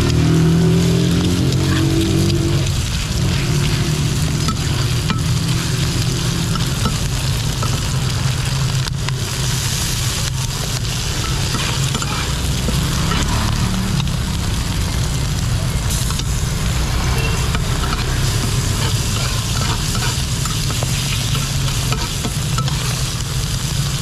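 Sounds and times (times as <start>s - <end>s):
batter sizzling on iron pan: 0.0s - 24.0s
low rumble: 0.0s - 24.0s
metal spatula scraping a pan: 0.7s - 8.2s, 10.8s - 13.6s, 17.0s - 23.5s.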